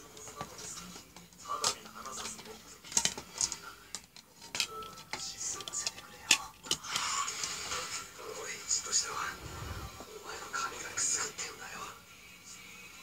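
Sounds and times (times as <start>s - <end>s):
plastic case clicks and rattles: 0.4s - 6.8s.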